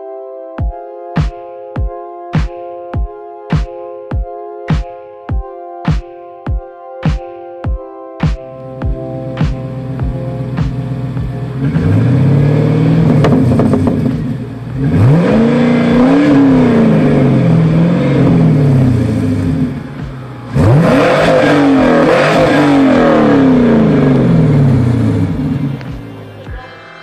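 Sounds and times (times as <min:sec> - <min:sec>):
car exhaust idling rumble: 0:08.6 - 0:26.3
engine revving: 0:09.3 - 0:26.2.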